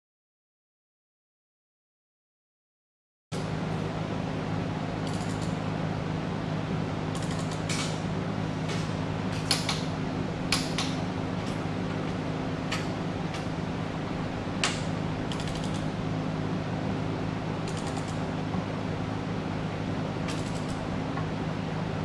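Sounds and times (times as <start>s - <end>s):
steady low hum: 3.4s - 22.0s
torque wrench clicking: 5.0s - 5.6s, 7.1s - 7.9s, 14.6s - 15.9s, 17.7s - 18.2s, 20.3s - 20.8s.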